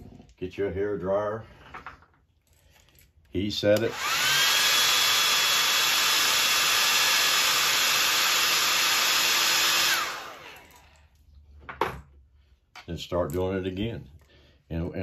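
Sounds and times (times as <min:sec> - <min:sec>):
hair dryer blowing: 0:03.8 - 0:11.0.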